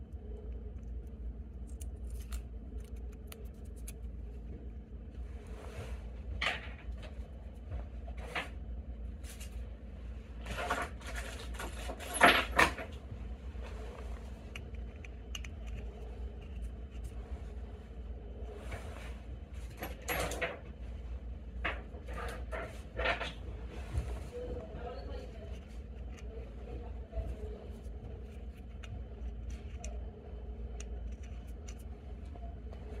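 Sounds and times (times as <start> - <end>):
low hum: 0.0 - 33.0
metal hinge rustles and scrapes: 21.6 - 30.1.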